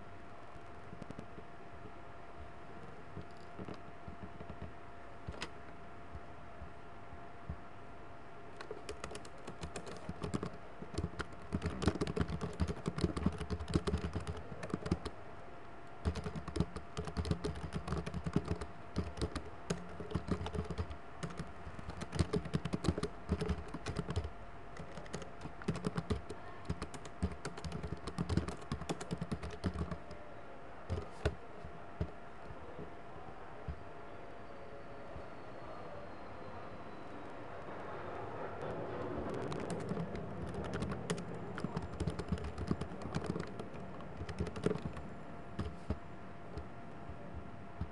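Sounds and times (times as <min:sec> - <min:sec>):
typing on computer keyboard: 0:08.6 - 0:15.1, 0:16.0 - 0:30.1, 0:30.9 - 0:31.4, 0:39.0 - 0:45.0, 0:45.6 - 0:46.0.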